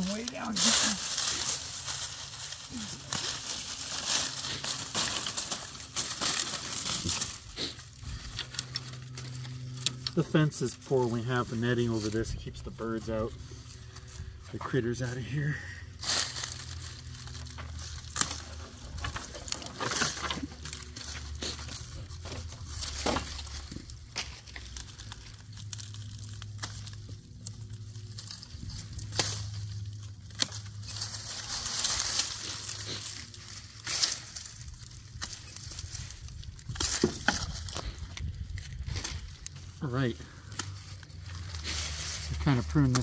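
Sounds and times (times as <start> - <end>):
leaves and vines rustling: 0.0 - 43.0
pruning shears snipping: 16.1 - 25.2, 26.2 - 36.0, 36.6 - 39.7, 40.4 - 43.0.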